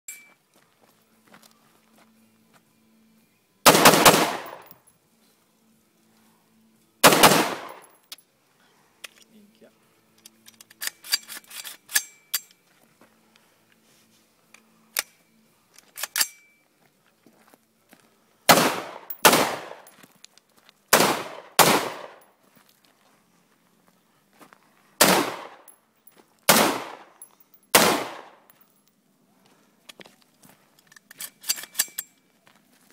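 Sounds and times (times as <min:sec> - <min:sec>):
rifle shots echoing: 0:03.7 - 0:04.7, 0:07.0 - 0:07.8, 0:18.5 - 0:19.9, 0:20.9 - 0:22.2, 0:25.0 - 0:25.7, 0:26.5 - 0:28.4.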